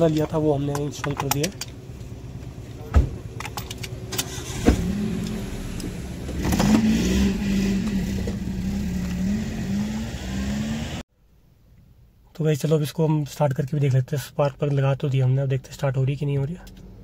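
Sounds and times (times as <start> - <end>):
car engine humming: 0.0 - 11.0.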